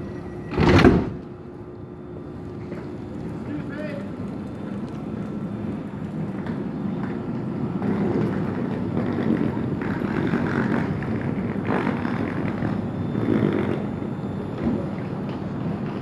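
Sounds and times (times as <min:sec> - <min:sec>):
passenger train running: 0:00.0 - 0:00.6, 0:01.2 - 0:16.0.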